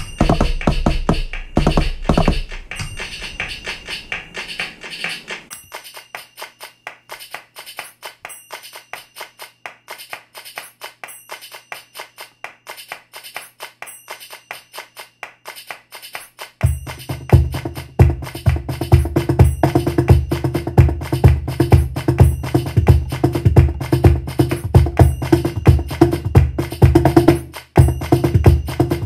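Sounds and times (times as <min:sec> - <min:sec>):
loud percussion slaps: 0:00.0 - 0:05.6, 0:15.5 - 0:29.0
electronic hand percussion taps: 0:00.0 - 0:29.0.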